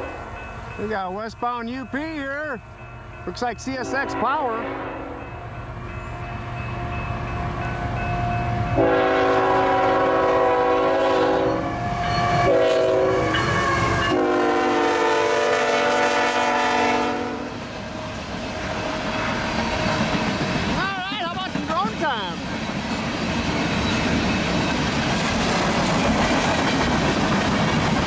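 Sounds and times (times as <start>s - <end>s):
train rumble: 0.0s - 28.0s
locomotive air horn blasts: 3.8s - 5.3s, 8.7s - 17.6s.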